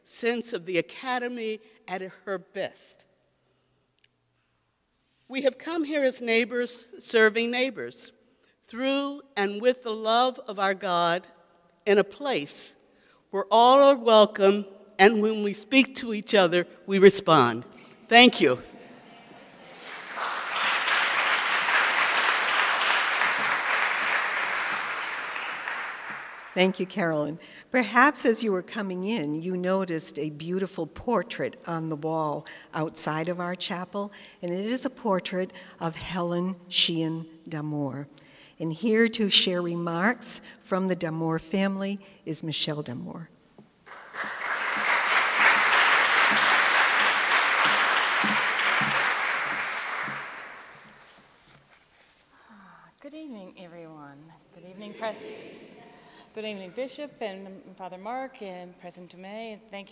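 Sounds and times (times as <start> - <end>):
audience applauding: 19.7 - 26.8, 43.9 - 51.3.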